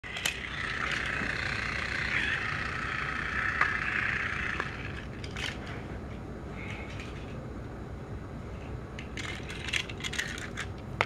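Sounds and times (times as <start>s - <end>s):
toy train motor whirring: 0.1s - 5.6s, 9.2s - 10.7s.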